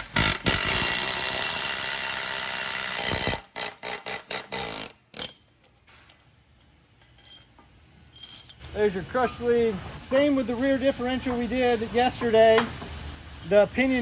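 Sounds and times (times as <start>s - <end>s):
pneumatic air hammer: 0.0s - 5.5s.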